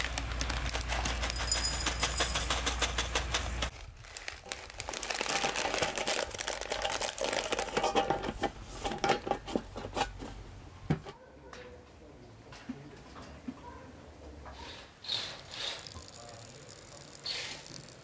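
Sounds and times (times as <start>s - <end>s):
foil packet crinkling: 0.0s - 8.1s
cardboard box crackling: 3.7s - 7.6s.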